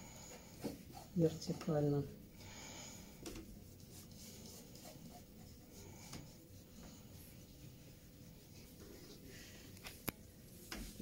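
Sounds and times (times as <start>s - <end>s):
pencil scratching on paper: 0.3s - 1.4s, 3.7s - 9.2s.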